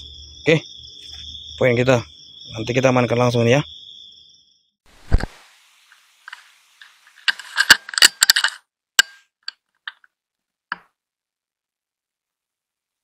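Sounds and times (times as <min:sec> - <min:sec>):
small mechanical clicks and rattles: 0:07.2 - 0:10.0.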